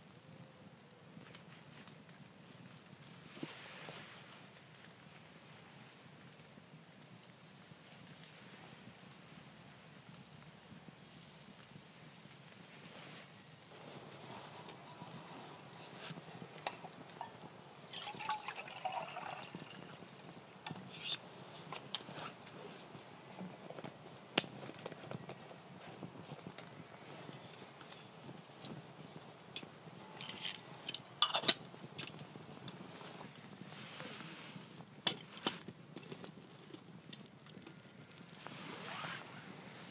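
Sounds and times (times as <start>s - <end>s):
rain dripping from trees: 13.6s - 33.6s, 34.6s - 39.9s.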